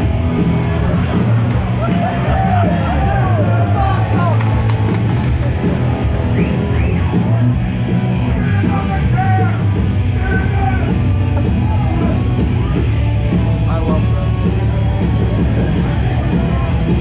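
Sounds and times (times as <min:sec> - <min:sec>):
loud rock music with vocals: 0:00.0 - 0:17.0.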